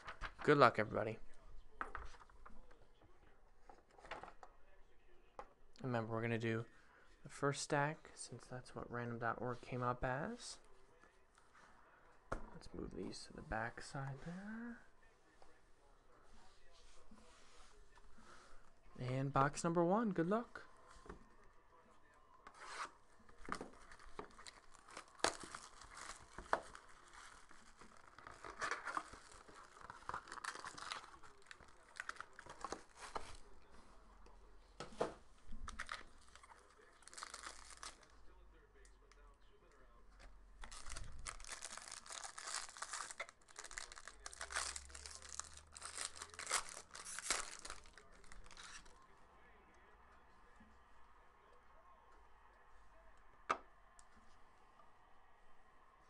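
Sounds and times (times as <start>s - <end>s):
plastic wrap crinkling: 22.6s - 33.5s, 35.7s - 38.2s, 40.6s - 49.1s
foil ripping: 40.7s - 48.9s.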